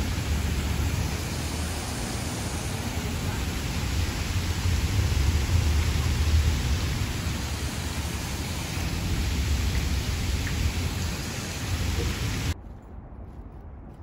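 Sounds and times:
water pouring down fountain: 0.0s - 12.6s.

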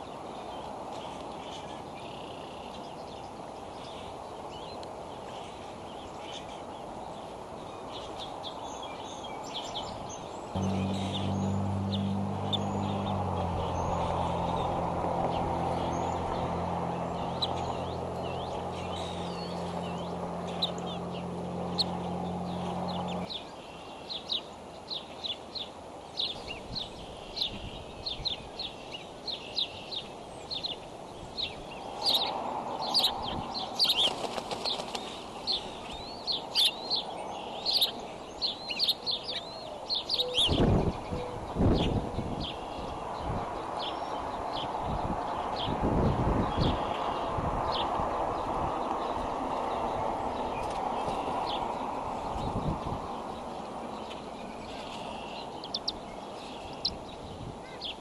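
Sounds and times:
high bird chirps: 10.6s - 14.7s
steady low hum: 10.6s - 23.3s.

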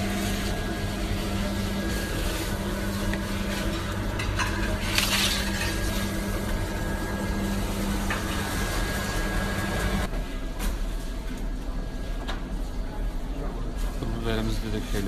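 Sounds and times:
machine hum: 0.0s - 10.2s
kitchen clatter: 3.3s - 6.6s.

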